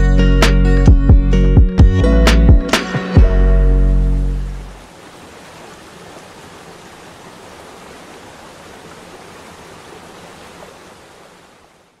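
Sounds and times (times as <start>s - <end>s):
rushing flowing water: 3.6s - 12.0s.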